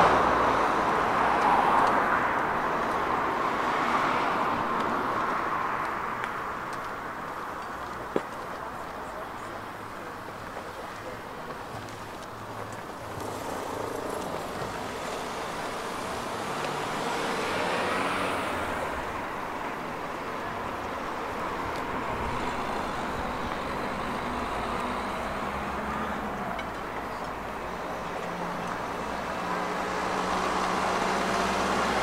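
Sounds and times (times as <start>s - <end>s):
cars passing on street: 0.0s - 32.0s.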